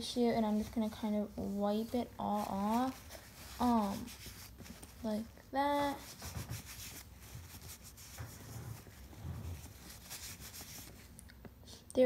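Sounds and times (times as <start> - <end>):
tissue rubbing and rustling: 0.0 - 11.2.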